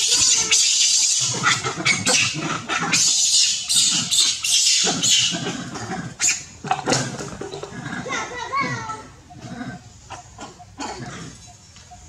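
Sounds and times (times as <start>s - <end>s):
monkeys screeching: 0.0s - 12.0s.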